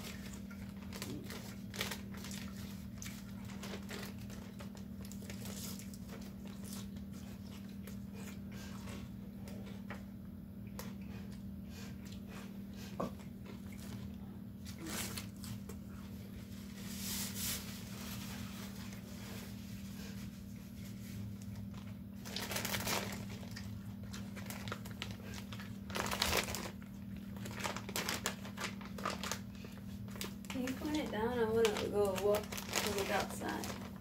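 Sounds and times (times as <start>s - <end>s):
plastic packaging crinkling: 0.0s - 6.8s, 21.5s - 34.0s.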